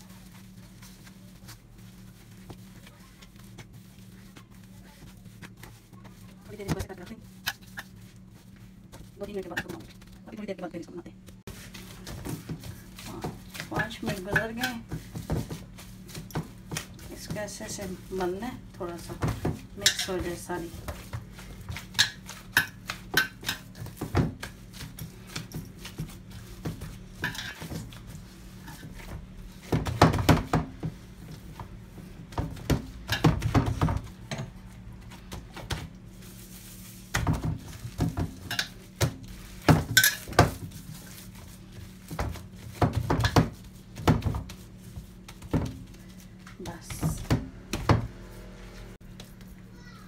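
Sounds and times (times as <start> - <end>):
hands slapping dough: 11.2 - 48.2.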